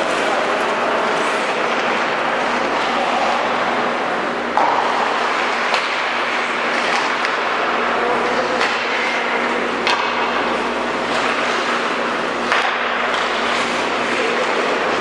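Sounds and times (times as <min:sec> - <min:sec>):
hockey sticks knocking puck: 0:04.5 - 0:15.0.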